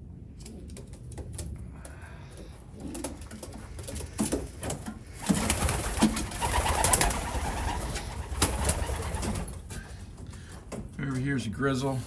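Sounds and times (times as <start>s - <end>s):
pigeons cooing: 2.2s - 10.0s.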